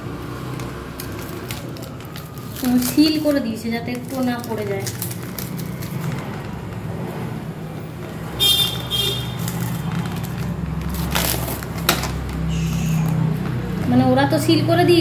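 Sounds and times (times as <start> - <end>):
cling film crinkling rips: 0.5 - 6.9, 8.7 - 13.3
cling film peeling off: 0.5 - 6.9, 8.6 - 13.2.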